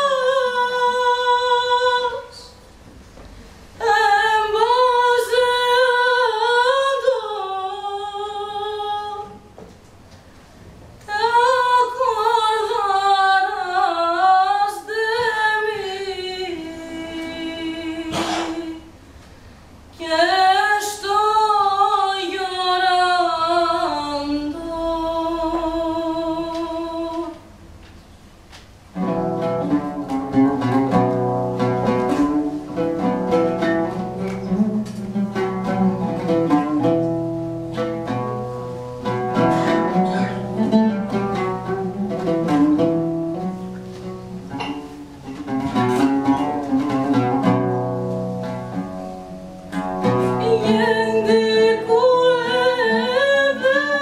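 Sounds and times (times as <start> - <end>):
person singing: 20.0 - 27.4, 50.0 - 54.0
plucked string instruments: 28.9 - 54.0.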